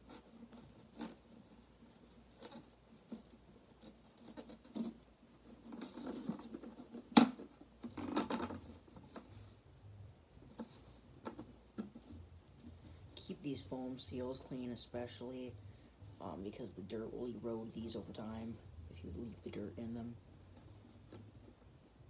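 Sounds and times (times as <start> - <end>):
plastic clicks and rubbing: 0.0 - 9.4, 10.4 - 12.8.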